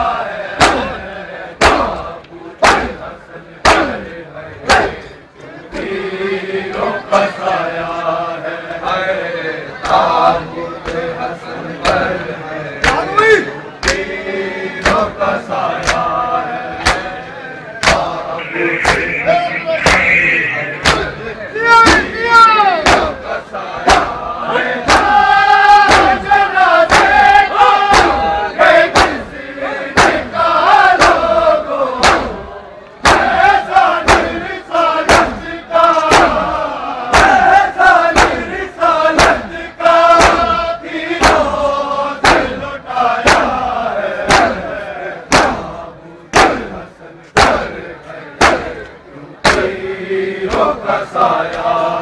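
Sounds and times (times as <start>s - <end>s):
men chanting together: 0.0s - 52.0s
hands striking chests: 17.8s - 21.2s.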